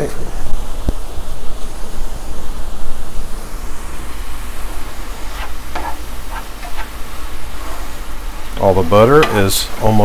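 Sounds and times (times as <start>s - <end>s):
utensil scraping pan: 5.2s - 8.0s, 8.6s - 10.0s.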